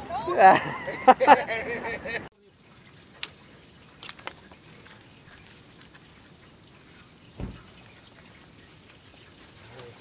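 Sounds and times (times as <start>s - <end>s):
insects buzzing: 0.1s - 10.0s
low thump: 7.4s - 7.9s.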